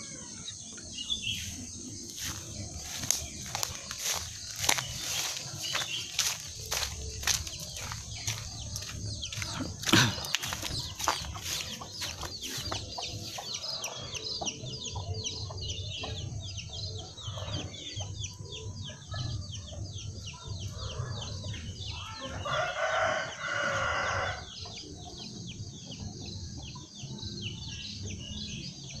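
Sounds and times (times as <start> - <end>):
chickens calling: 0.0 - 28.4
rapid high chirping: 1.1 - 15.8
rooster crowing: 22.2 - 24.5.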